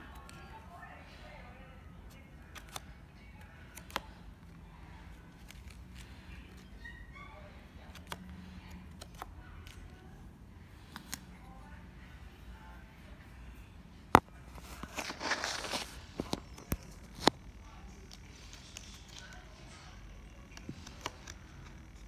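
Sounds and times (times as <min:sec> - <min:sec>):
cards laid on felt table: 0:14.1 - 0:19.6.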